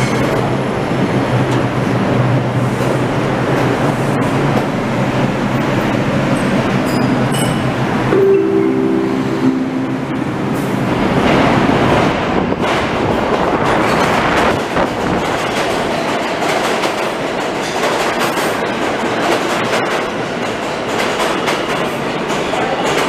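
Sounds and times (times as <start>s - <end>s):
subway train rumbling: 0.0s - 23.0s
wheels rattling over track: 11.0s - 23.0s.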